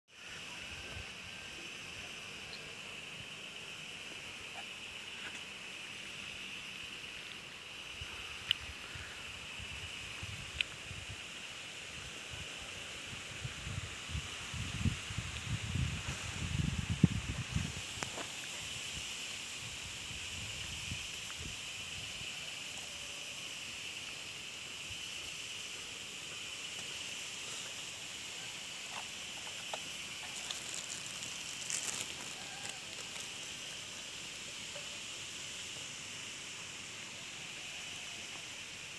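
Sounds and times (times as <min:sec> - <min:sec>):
insect chorus buzz: 0:00.1 - 0:38.9
plastic bag crinkling: 0:30.2 - 0:33.4.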